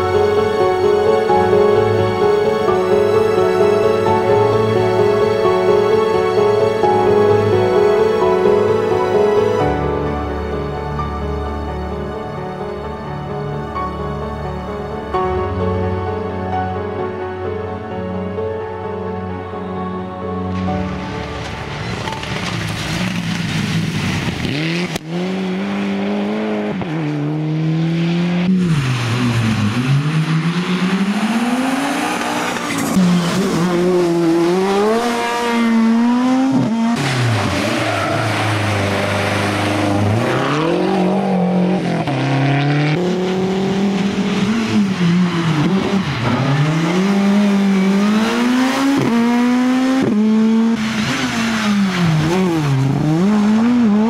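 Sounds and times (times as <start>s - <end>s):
rally car engines revving: 20.5s - 54.0s.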